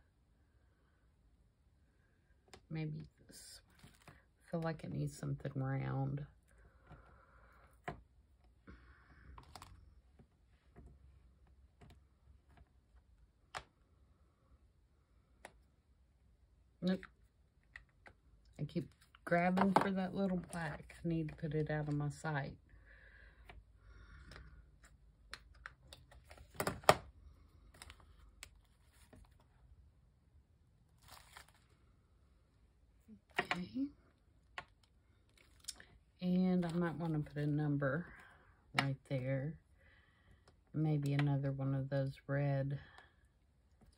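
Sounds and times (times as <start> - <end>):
paper rustle: 31.0 - 31.8.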